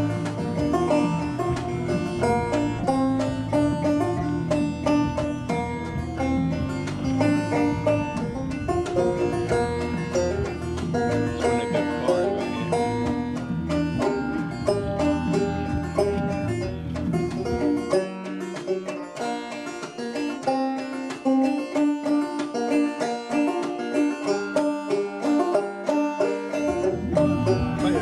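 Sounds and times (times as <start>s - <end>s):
bass: 0.0s - 18.5s, 26.5s - 28.0s
picked banjo-style string notes: 0.0s - 28.0s.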